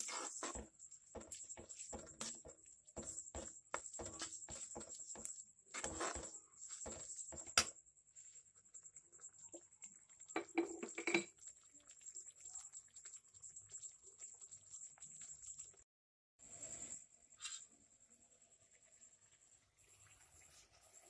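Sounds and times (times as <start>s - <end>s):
steel spoon scraping metal pan: 0.0s - 7.7s.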